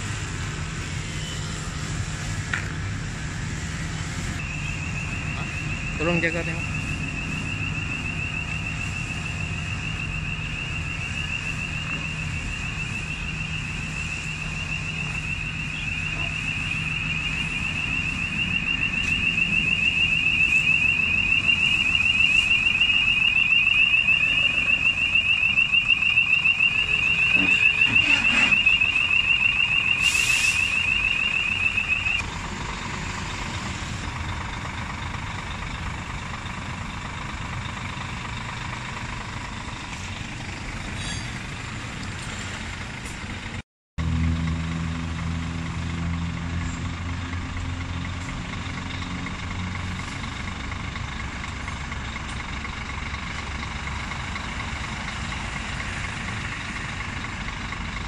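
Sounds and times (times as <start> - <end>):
diesel engine running: 0.0 - 58.0
truck reversing alarm beeping: 0.0 - 58.0
short hiss: 30.0 - 30.7.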